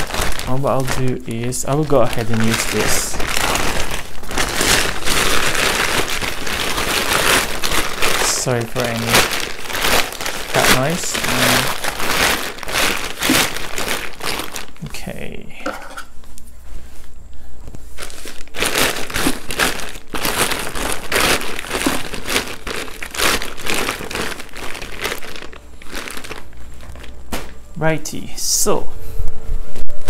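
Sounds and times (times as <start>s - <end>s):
plastic sack crinkling: 0.0s - 17.0s, 17.8s - 28.1s.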